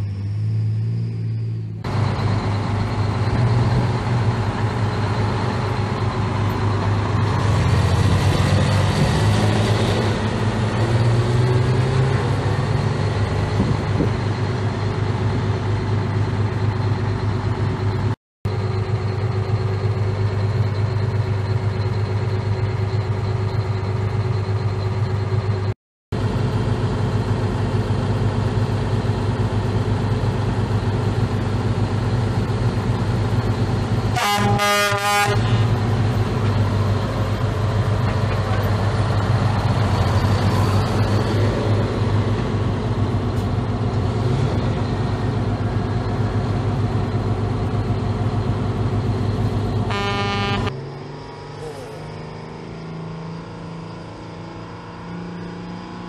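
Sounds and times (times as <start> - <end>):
truck diesel engines running: 0.0 - 56.0
air horn blasts: 34.1 - 35.8, 49.9 - 50.7.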